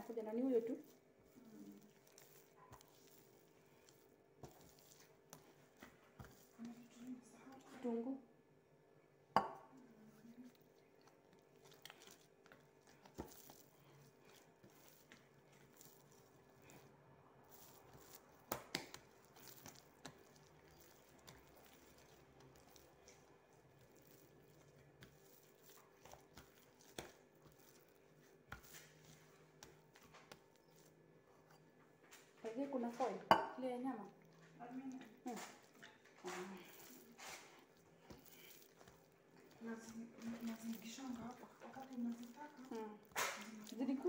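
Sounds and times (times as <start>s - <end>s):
hands kneading sticky dough: 0.0s - 44.0s.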